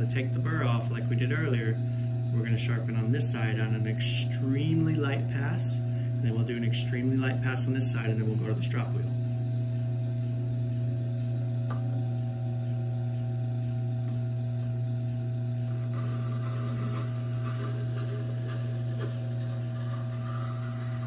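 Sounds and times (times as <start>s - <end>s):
sharpener motor hum: 15.3s - 21.0s
knife scraping on grinding stone: 15.7s - 21.0s.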